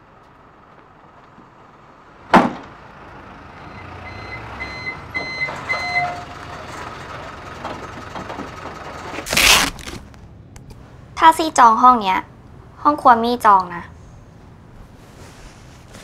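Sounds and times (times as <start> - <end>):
garbage truck engine rumbling: 0.0 - 16.0
loud thump: 2.3 - 2.8
reversing alarm beeps: 3.7 - 6.3.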